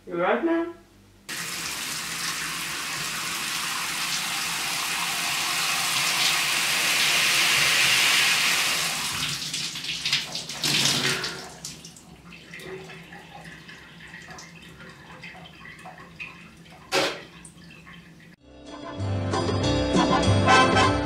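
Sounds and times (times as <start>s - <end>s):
shower spraying water: 1.3s - 18.1s
water dripping: 9.0s - 18.4s.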